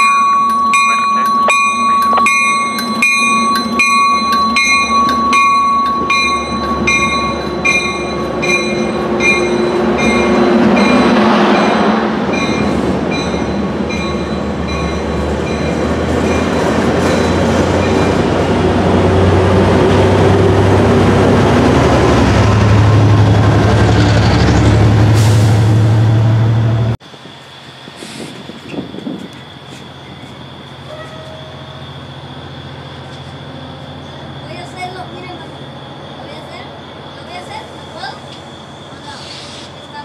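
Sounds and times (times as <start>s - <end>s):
locomotive bell ringing: 0.0s - 19.7s
train cars rumbling by: 0.0s - 40.0s.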